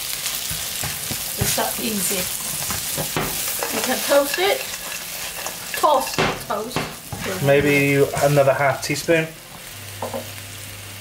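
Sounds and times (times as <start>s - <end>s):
utensil scraping a wok: 0.0s - 9.0s
food sizzling in oil: 0.0s - 11.0s.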